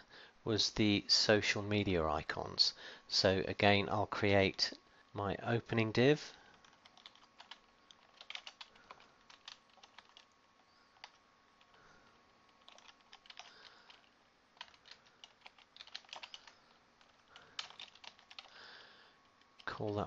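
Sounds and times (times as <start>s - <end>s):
faint keyboard typing: 6.2s - 20.0s.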